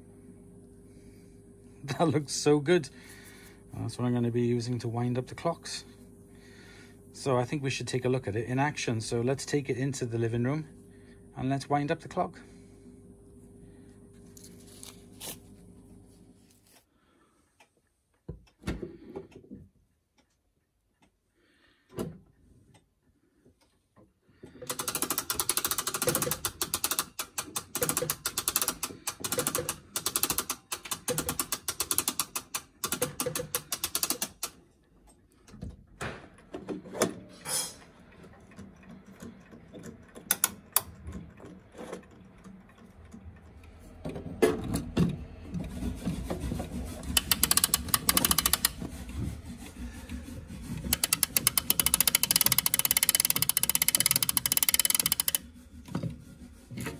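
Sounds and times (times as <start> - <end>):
clock winding ratchet clicking: 24.7 - 34.6, 40.1 - 41.0, 47.1 - 48.8, 50.8 - 55.5.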